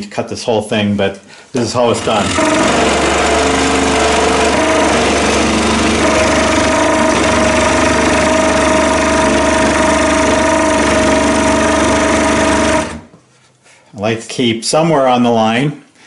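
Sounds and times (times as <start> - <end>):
scroll saw cutting plywood: 1.6 - 13.1.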